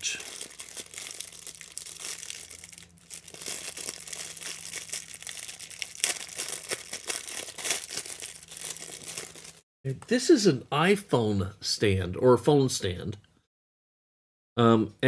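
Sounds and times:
packaging crinkling: 0.0s - 9.6s.

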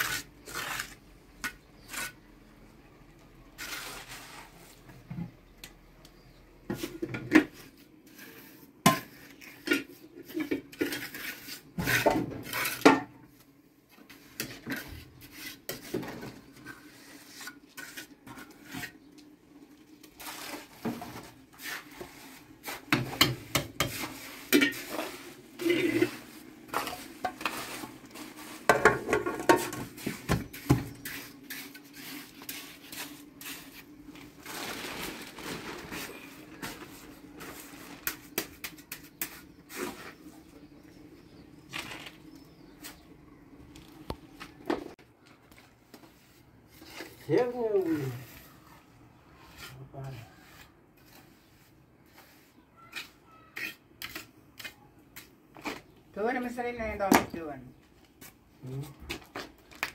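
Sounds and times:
trowel scraping on mortar: 0.0s - 2.3s, 3.5s - 4.8s, 8.0s - 13.0s, 14.0s - 19.1s, 20.0s - 34.1s, 35.9s - 41.4s, 49.3s - 55.9s.

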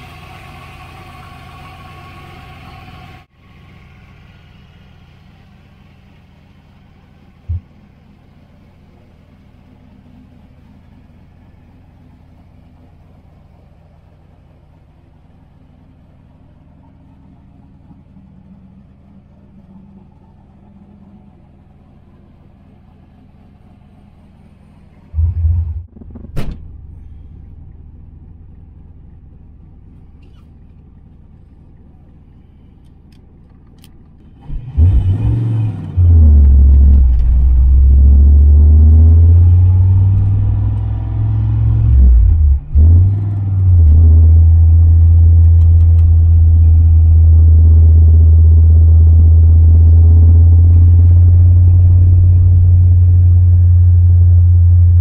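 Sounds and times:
car engine and exhaust drone: 0.0s - 55.0s
thump: 26.0s - 26.8s.

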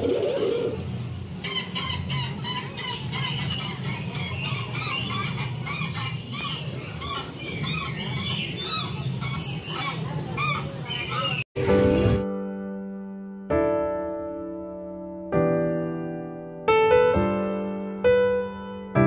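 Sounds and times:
bird squawks and chirps: 0.0s - 11.4s.

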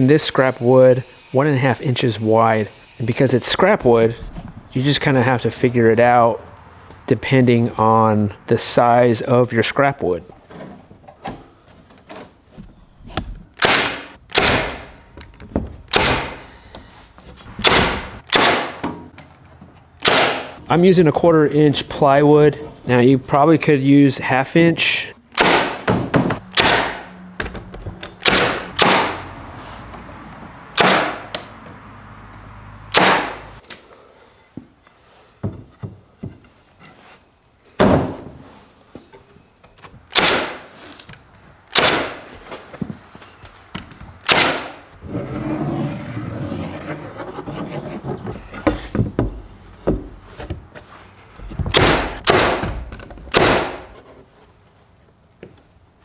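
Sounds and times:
nailer firing sharp shots: 13.6s - 14.9s, 15.9s - 16.4s, 17.6s - 18.8s, 20.0s - 20.6s, 25.3s - 27.1s, 28.2s - 29.2s, 30.8s - 31.3s, 32.9s - 33.5s, 40.1s - 40.7s, 41.7s - 42.3s, 44.2s - 44.8s, 51.7s - 53.9s.

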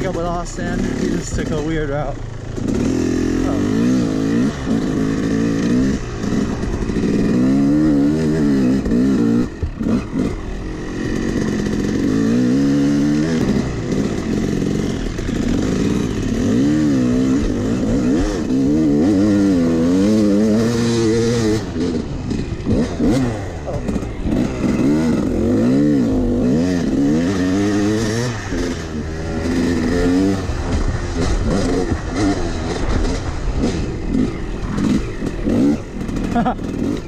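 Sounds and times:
dirt bike engine revving: 0.0s - 37.0s
chassis clatter: 20.6s - 37.0s.

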